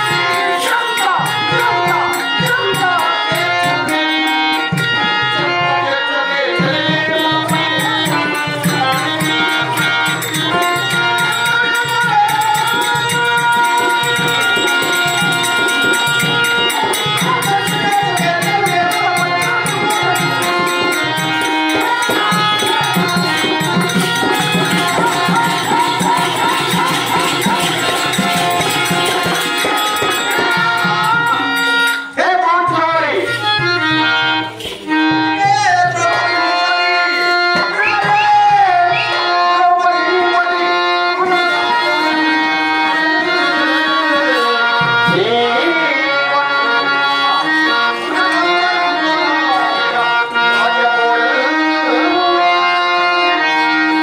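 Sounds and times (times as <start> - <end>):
hand drum rhythm: 0.0 - 5.7, 6.6 - 39.3
held melody line: 0.0 - 54.0
jingling ankle bells: 8.8 - 31.9.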